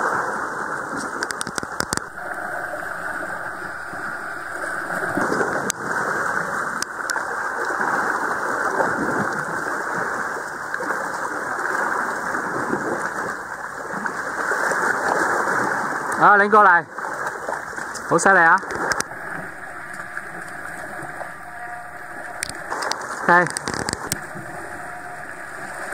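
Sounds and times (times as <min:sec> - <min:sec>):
sharp clicks: 0:01.2 - 0:05.4.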